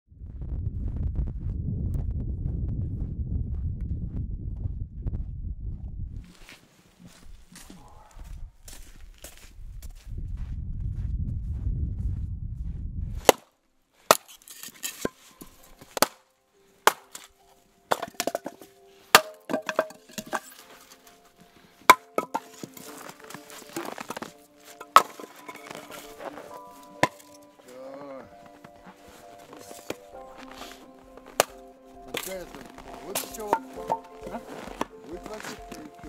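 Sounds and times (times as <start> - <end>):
low steady rumble: 0.1 - 6.3, 10.1 - 13.2
axe splitting firewood: 13.2 - 13.5, 14.1 - 16.2, 16.8 - 21.2, 21.8 - 27.6, 29.2 - 35.8
split wood pieces knocking: 14.1 - 16.2, 16.8 - 17.3, 17.9 - 20.8, 21.8 - 27.5, 31.2 - 35.0.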